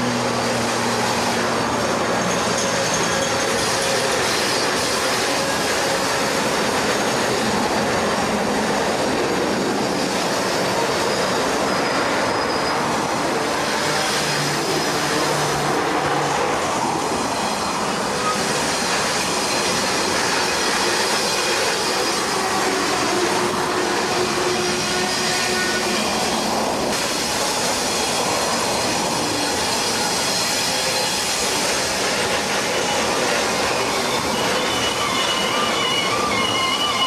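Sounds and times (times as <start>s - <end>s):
diesel locomotive engine drone: 0.0s - 37.0s
wheel-on-rail noise: 0.0s - 37.0s
wheel squeal: 1.2s - 8.7s, 9.8s - 15.6s, 17.3s - 37.0s.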